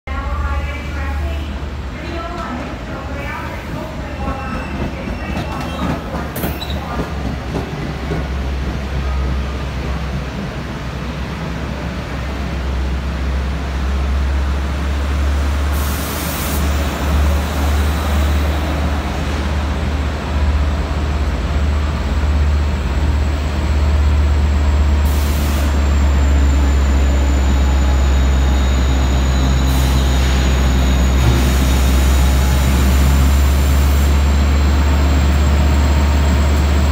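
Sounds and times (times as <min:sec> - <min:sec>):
train rolling to a stop: 0:01.6 - 0:36.9
air brakes hissing: 0:15.7 - 0:16.8, 0:25.0 - 0:26.1, 0:29.0 - 0:34.3.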